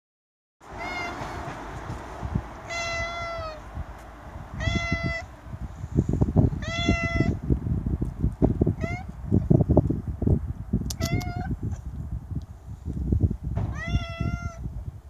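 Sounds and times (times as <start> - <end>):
cat meowing: 0.7 - 1.4, 2.6 - 3.6, 4.5 - 5.3, 6.6 - 7.4, 8.7 - 9.2, 10.9 - 11.6, 13.7 - 14.6.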